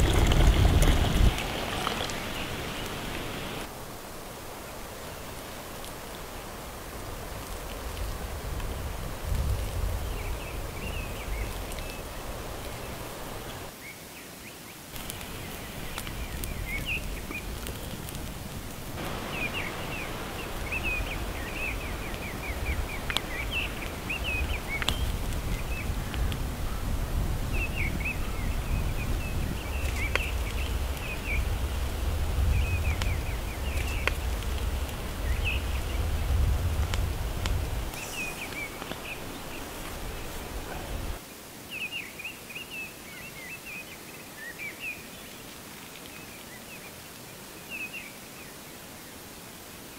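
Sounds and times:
small birds chirping: 0:00.0 - 0:03.7, 0:09.3 - 0:48.6
outdoor hiss: 0:00.0 - 0:49.9
low rumble: 0:19.2 - 0:41.2.

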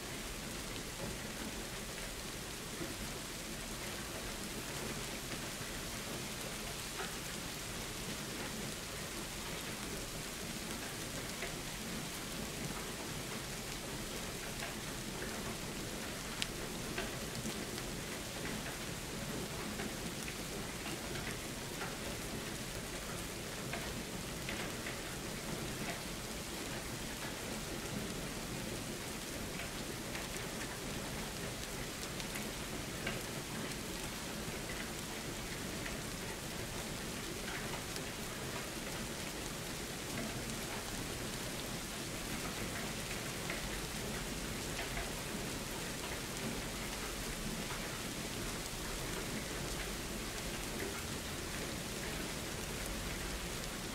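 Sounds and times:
steady rain falling: 0:00.0 - 0:53.9
sharp raindrop ticks: 0:14.4 - 0:28.0, 0:28.6 - 0:53.9.

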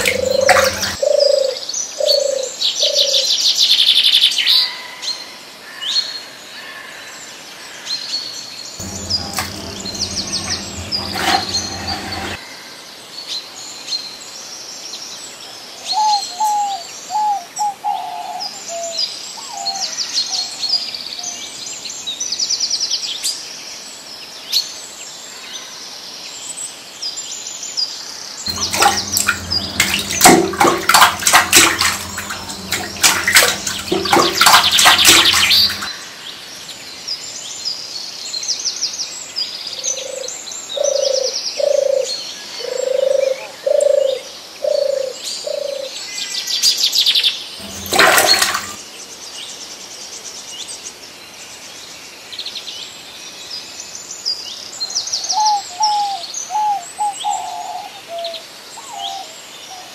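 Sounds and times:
steady low hum: 0:08.8 - 0:12.4, 0:28.5 - 0:35.9.

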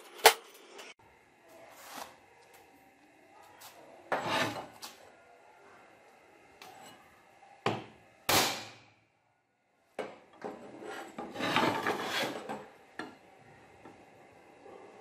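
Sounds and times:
metal-on-metal scraping: 0:04.1 - 0:04.9, 0:10.4 - 0:12.6.

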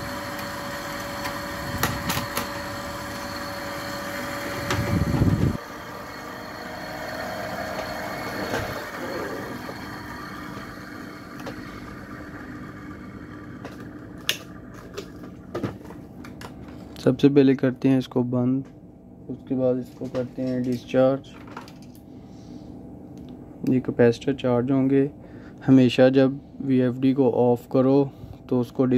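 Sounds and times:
cooling fan humming: 0:00.0 - 0:28.9.

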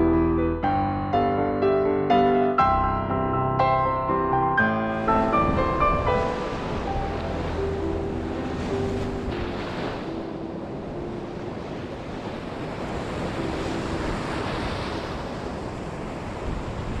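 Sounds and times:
soft piano notes: 0:00.0 - 0:12.0
surf washing onto beach: 0:04.9 - 0:17.0.

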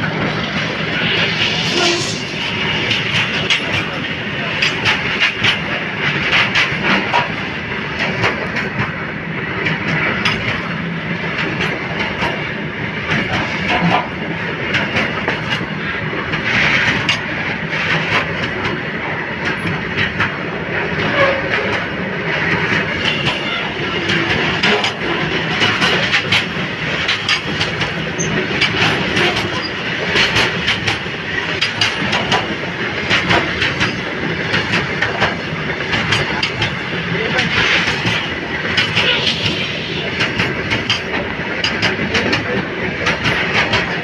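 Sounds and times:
train rumble: 0:00.0 - 0:44.0
train wheels clattering over rail joints: 0:00.0 - 0:44.0.

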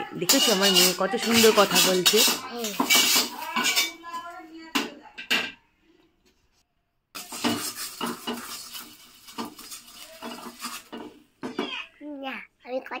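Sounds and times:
utensil scraping frying pan: 0:00.0 - 0:04.1, 0:07.2 - 0:11.8.

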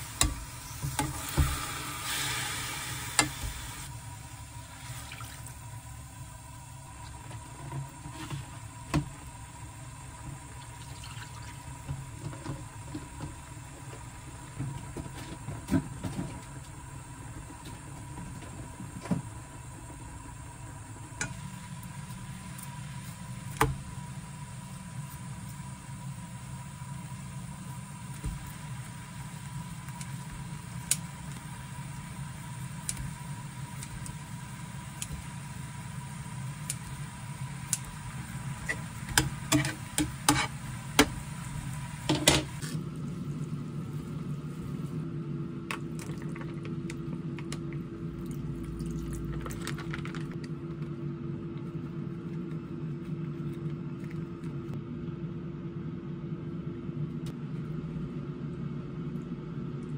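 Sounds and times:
pot simmering: 0:00.0 - 0:54.8.

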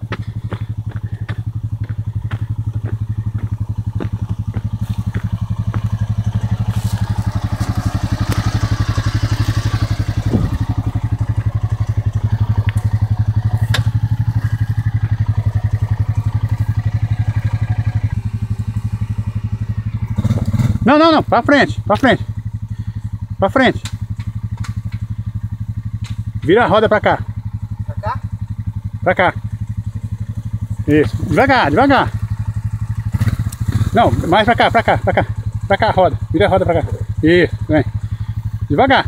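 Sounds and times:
crunching and scraping: 0:00.0 - 0:08.6
quad engine idling: 0:00.0 - 0:39.0.

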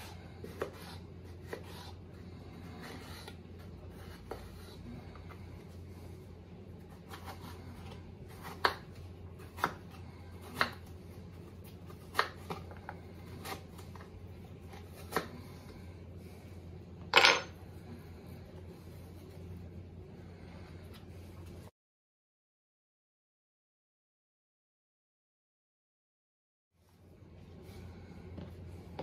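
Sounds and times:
knife chopping on wooden board: 0:00.4 - 0:02.0, 0:07.0 - 0:10.9, 0:11.9 - 0:14.1.

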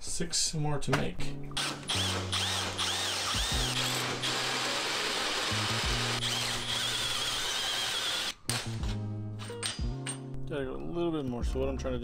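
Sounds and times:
cordless drill boring steel: 0:01.6 - 0:08.4
drill bit squealing in metal: 0:01.9 - 0:08.3.

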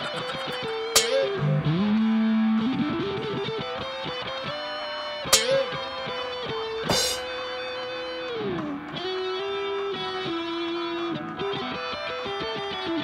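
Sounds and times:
electric guitar music: 0:00.0 - 0:13.0
sharp hit: 0:06.9 - 0:07.4.

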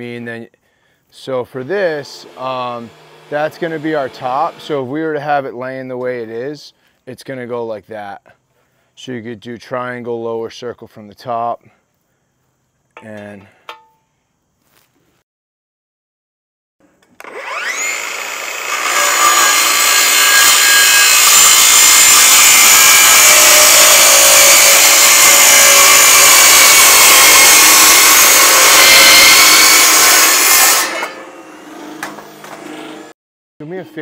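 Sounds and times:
circular saw cutting metal: 0:01.2 - 0:05.4, 0:17.2 - 0:33.1.

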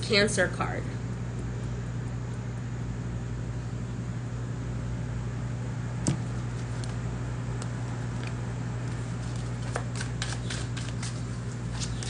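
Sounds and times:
steady low hum: 0:00.0 - 0:12.0
cards being shuffled: 0:08.2 - 0:12.0.

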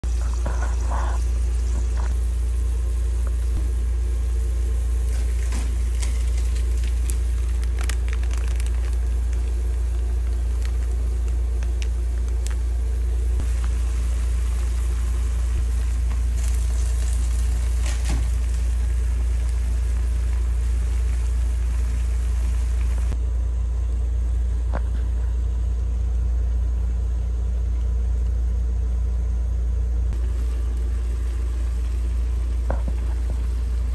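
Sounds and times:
soup sizzling and bubbling: 0:00.0 - 0:23.2, 0:30.1 - 0:33.9
steady low rumble: 0:00.0 - 0:33.9.

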